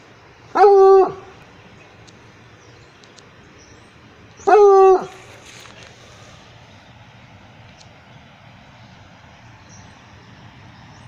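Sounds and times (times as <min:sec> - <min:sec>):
dog barking: 0:04.5 - 0:05.2.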